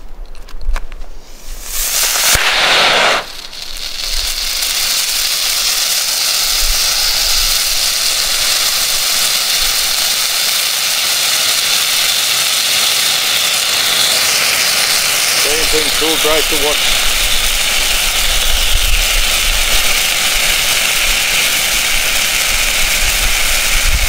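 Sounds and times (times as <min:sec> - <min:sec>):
sharp crack: 0:00.8 - 0:12.1
flare fizzing and hissing: 0:01.2 - 0:24.0.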